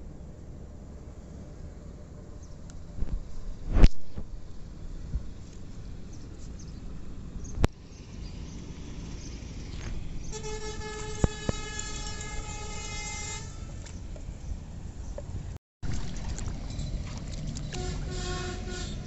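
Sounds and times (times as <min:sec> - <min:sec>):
horn steady note: 0:10.3 - 0:13.8, 0:17.7 - 0:19.0.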